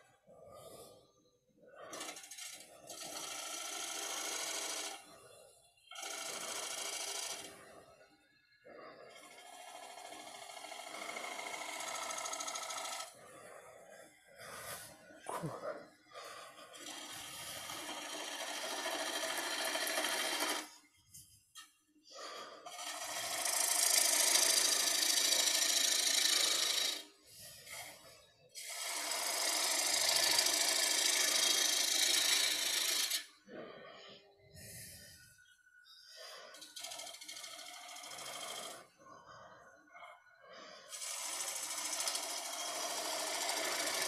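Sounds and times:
lathe gouge cutting wood hissing: 16.8 - 20.6, 22.7 - 27.0, 28.6 - 33.2, 41.0 - 44.0.

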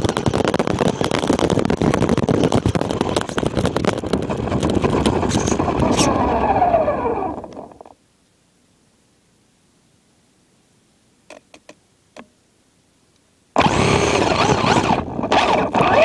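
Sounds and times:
electric motor whine: 4.7 - 7.9, 13.6 - 16.0.

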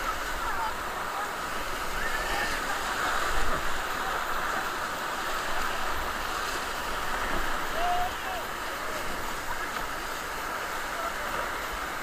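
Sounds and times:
whitewater rushing: 0.0 - 12.0.

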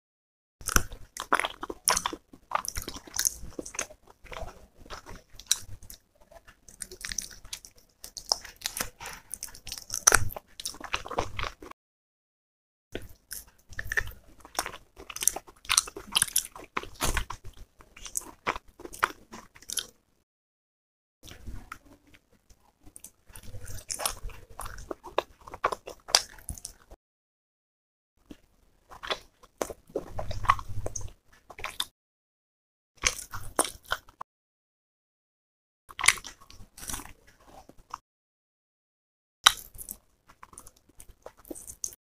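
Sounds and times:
person biting and chewing food: 0.6 - 11.7, 13.0 - 20.0, 22.8 - 27.0, 28.3 - 31.9, 33.0 - 34.2, 35.9 - 38.0, 39.4 - 42.0.

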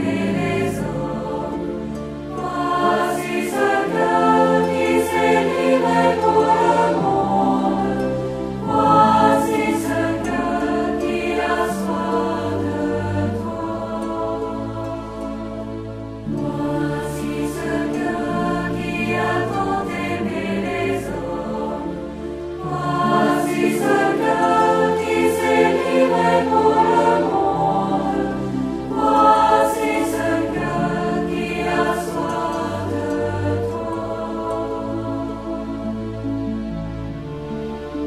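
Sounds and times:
choir singing slow song: 0.0 - 38.0
instrumental accompaniment: 0.0 - 38.0.

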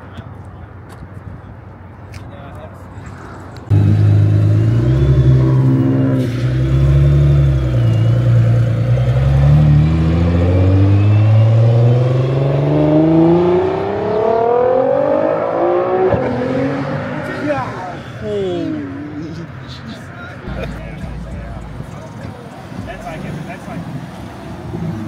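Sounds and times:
car engine accelerating: 3.7 - 18.0.

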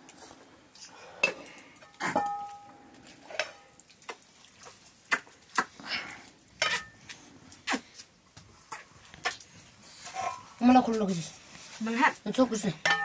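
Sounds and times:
metal utensils clinking on plates: 1.2 - 2.7, 6.6 - 7.0.

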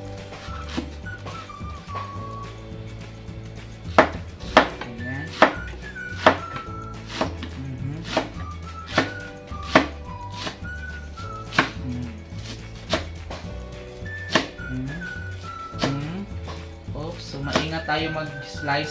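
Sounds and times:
background music: 0.0 - 18.9
knife chopping on cutting board: 3.9 - 10.6, 11.5 - 13.1, 14.3 - 14.6, 17.5 - 17.7.

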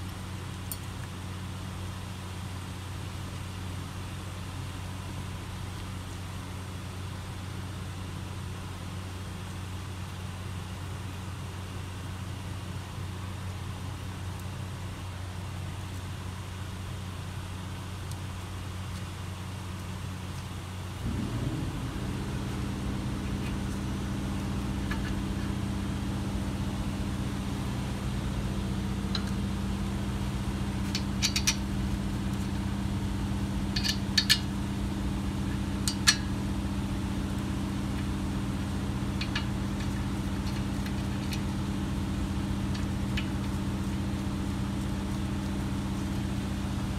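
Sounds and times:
low mechanical hum: 0.0 - 46.9
sharp metallic clicks and taps: 30.8 - 31.7, 33.7 - 34.5, 35.8 - 36.3.

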